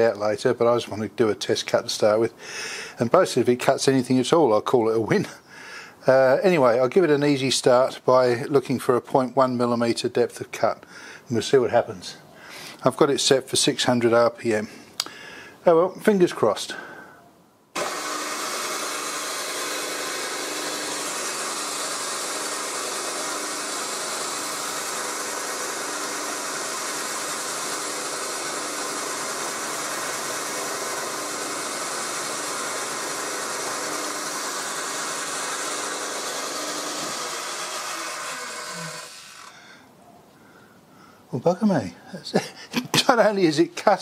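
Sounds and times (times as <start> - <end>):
milling machine spindle whirring: 17.8 - 39.6
spindle winding down: 17.8 - 39.8.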